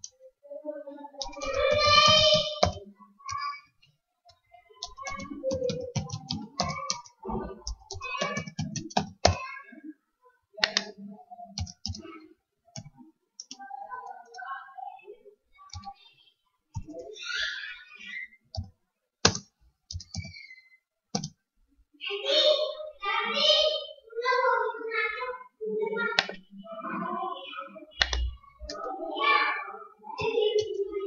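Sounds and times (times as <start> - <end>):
computer keyboard typing: 1.2 - 3.4, 4.8 - 7.1, 7.7 - 9.4, 10.6 - 10.9, 11.6 - 12.0, 18.6 - 20.4, 21.1 - 21.4.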